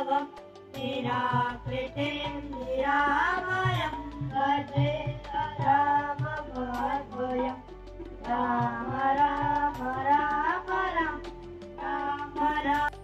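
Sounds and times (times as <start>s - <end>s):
tabla strokes: 0.0s - 13.0s
children singing: 8.3s - 11.2s.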